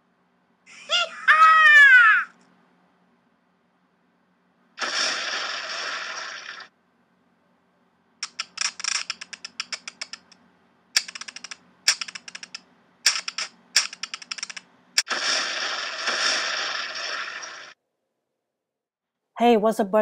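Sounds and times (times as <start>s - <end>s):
keyboard typing clicks: 8.2s - 10.4s, 11.0s - 14.6s.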